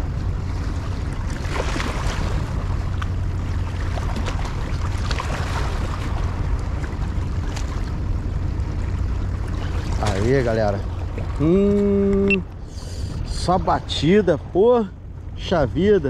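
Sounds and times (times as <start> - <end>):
waves lapping against rocks: 0.6 - 8.0.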